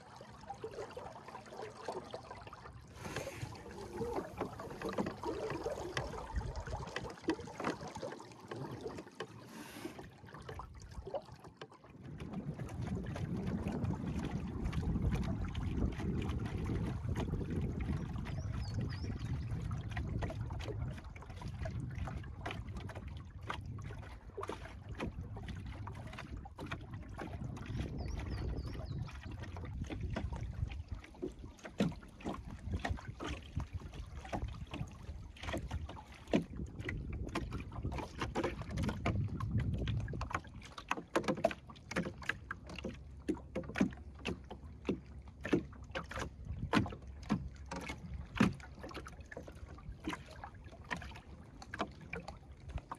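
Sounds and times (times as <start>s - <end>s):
water slapping against hull: 0.0s - 52.9s
wind rumble on microphone: 3.0s - 7.0s, 12.0s - 40.7s, 46.2s - 47.4s.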